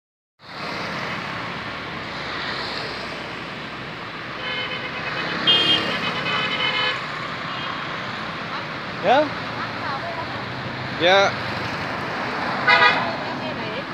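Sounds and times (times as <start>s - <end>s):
car passing: 0.4s - 13.9s
motorbikes passing: 0.4s - 13.9s
street traffic: 0.4s - 13.9s
vehicle horn: 4.4s - 7.8s, 12.6s - 13.2s.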